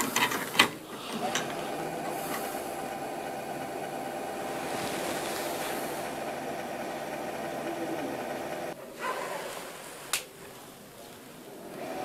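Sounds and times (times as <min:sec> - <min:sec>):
computer fans whooshing: 0:00.8 - 0:08.8
mid-pitched whine: 0:00.9 - 0:08.8.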